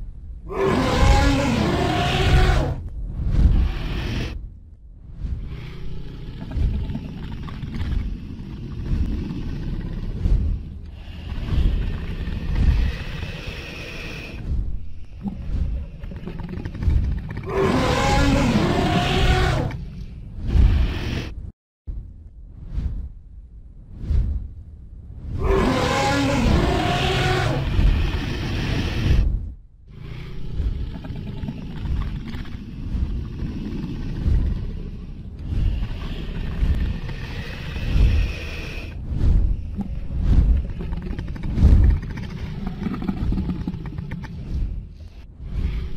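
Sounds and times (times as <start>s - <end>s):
low rumble: 0.0s - 45.9s
dragon growling roar: 0.5s - 2.8s, 17.4s - 19.8s, 25.3s - 29.2s
whooshing wing beats: 2.1s - 17.4s, 31.8s - 45.9s.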